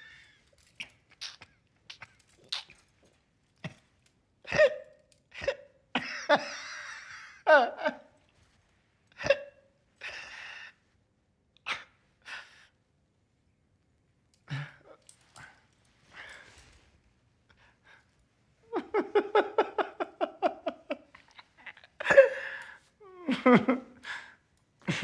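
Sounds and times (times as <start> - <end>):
man's stifled laughter: 5.4 - 8.0, 18.7 - 24.0.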